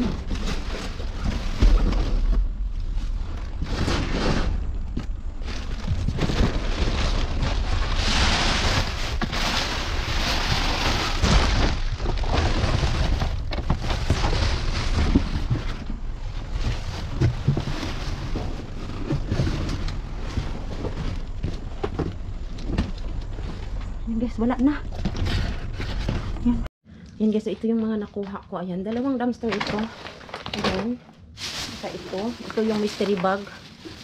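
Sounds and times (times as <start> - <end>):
rustling cardboard and plastic bags: 0.0 - 26.7, 28.9 - 34.0.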